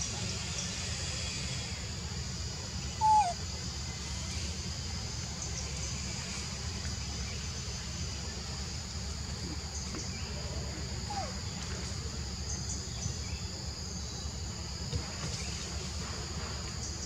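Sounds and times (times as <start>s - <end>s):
high insect drone: 0.0s - 17.0s
animal call: 3.0s - 3.4s.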